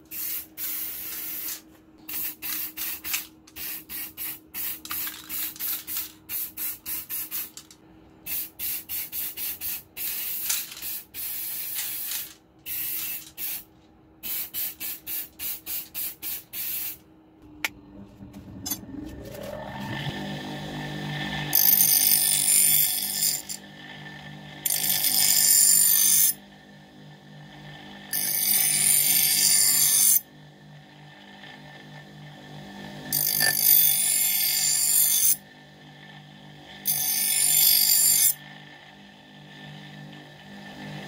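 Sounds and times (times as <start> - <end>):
spray paint can hissing: 0.1 - 7.6, 8.3 - 13.6, 14.2 - 17.0
abrasive wheel whining: 17.4 - 22.2.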